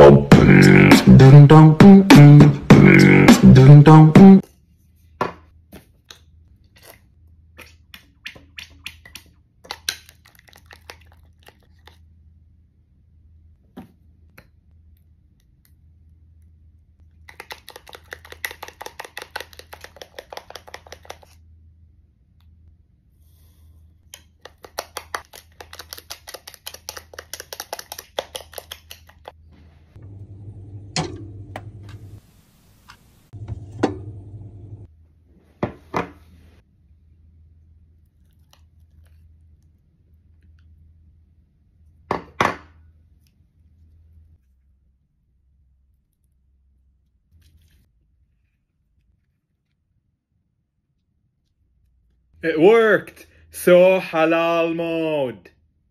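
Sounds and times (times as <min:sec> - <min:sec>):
refrigerator hum: 0:30.0 - 0:32.2, 0:33.4 - 0:34.8.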